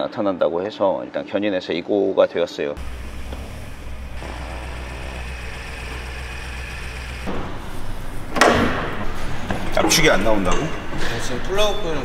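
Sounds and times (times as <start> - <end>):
car engine idling: 2.8 - 8.3.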